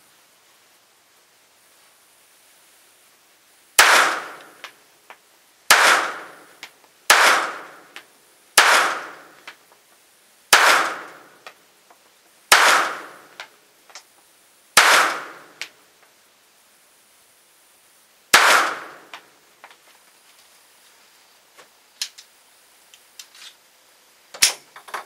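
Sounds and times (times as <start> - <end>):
pistol shots: 3.8 - 4.5, 5.7 - 6.4, 7.1 - 7.8, 8.6 - 9.3, 10.5 - 11.2, 12.5 - 13.2, 14.8 - 15.6, 18.3 - 19.1
faint clicks: 21.6 - 22.3.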